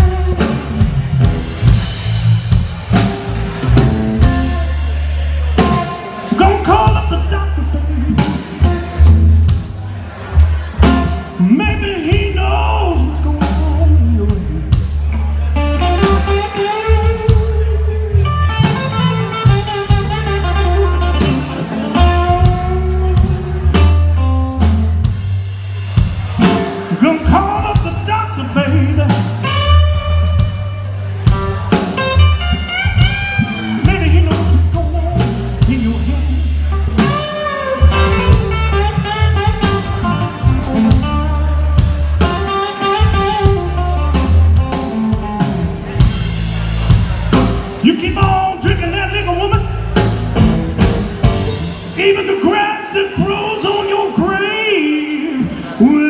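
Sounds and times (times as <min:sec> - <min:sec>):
electric bass line: 0:00.0 - 0:52.4
blues band playing: 0:00.0 - 0:56.0.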